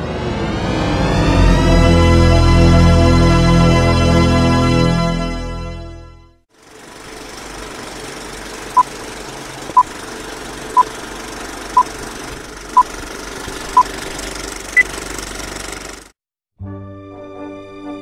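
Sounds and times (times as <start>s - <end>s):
film projector running: 6.6s - 16.1s.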